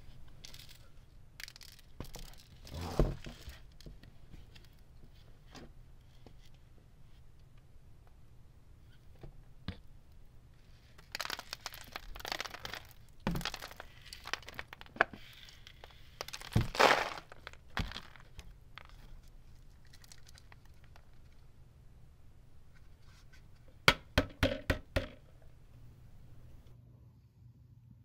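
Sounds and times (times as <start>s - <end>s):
dust rustling and crackling: 10.8s - 21.3s.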